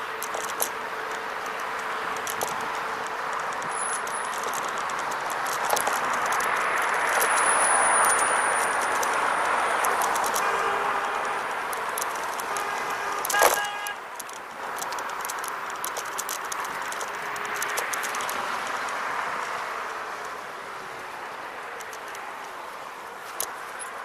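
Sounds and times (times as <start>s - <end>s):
scooter rattling clicks: 0.0s - 24.0s
tyre and wind noise: 0.0s - 24.0s.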